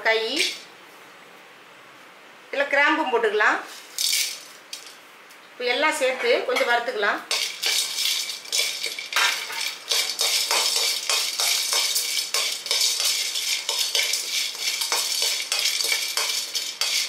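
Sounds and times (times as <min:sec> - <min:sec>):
spices rattling in a pan: 0:03.9 - 0:05.0, 0:06.6 - 0:17.0
metal ladle scraping a pan: 0:07.3 - 0:17.0.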